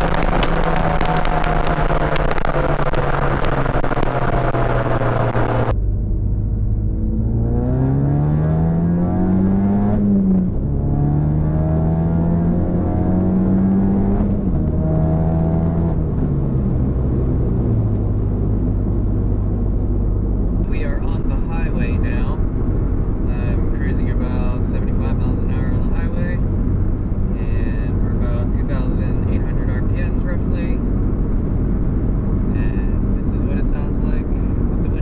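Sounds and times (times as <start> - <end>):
wind noise on microphone: 0.0 - 7.2
car engine drone: 0.0 - 35.0.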